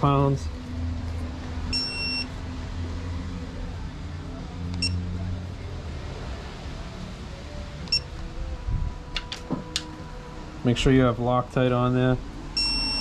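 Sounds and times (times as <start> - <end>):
high electronic beeps: 1.7 - 2.3, 12.6 - 13.0.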